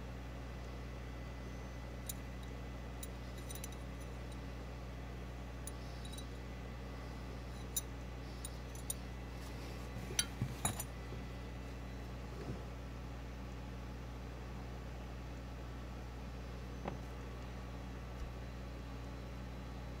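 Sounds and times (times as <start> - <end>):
steady low hum: 0.0 - 20.0
metal buckles clinking: 3.0 - 4.1, 8.4 - 9.0, 10.2 - 10.9.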